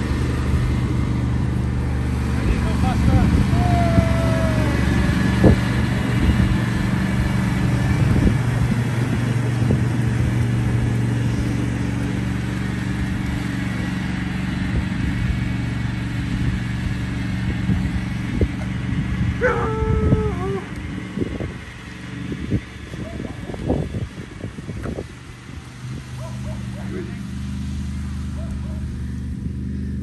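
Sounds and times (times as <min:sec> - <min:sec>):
ride-on lawn mower engine running: 0:00.0 - 0:30.0
dog whining: 0:19.4 - 0:20.7.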